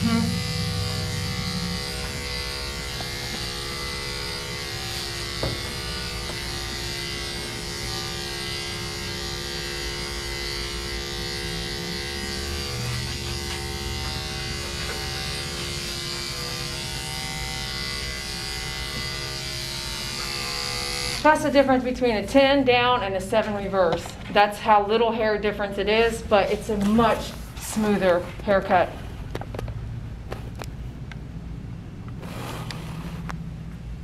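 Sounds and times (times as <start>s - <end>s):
electric clippers humming: 0.0s - 22.2s.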